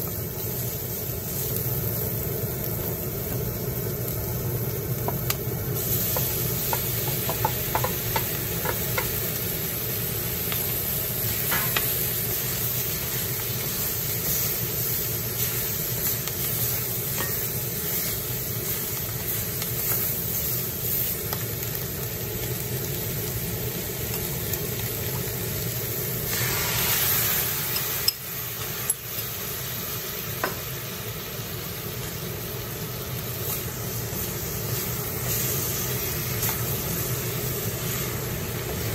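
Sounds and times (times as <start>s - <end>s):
food sizzling in a wok: 0.0s - 38.9s.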